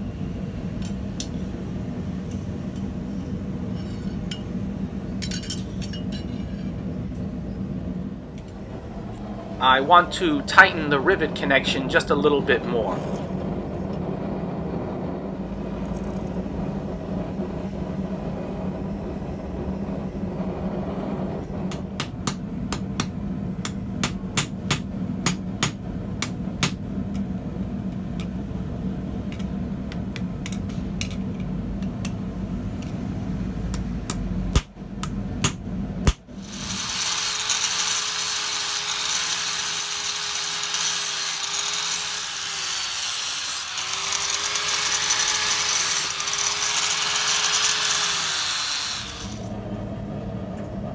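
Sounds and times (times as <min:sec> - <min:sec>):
forge burner roaring: 0:00.0 - 0:50.9
angle grinder on metal: 0:36.4 - 0:49.5.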